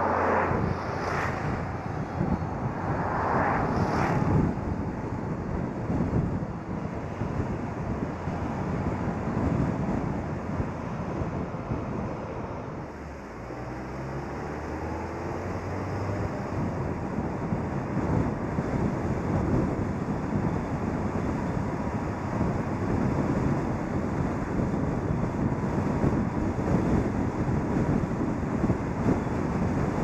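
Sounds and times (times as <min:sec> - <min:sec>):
car engine: 0:00.0 - 0:09.2, 0:10.0 - 0:19.3
car wind and road noise: 0:00.0 - 0:30.0
wind buffeting microphone: 0:00.0 - 0:30.0.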